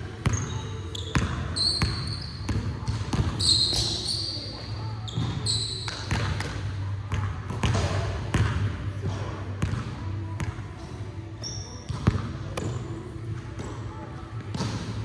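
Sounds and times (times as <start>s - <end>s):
sneaker squeaks: 0.2s - 6.2s, 11.4s - 13.0s.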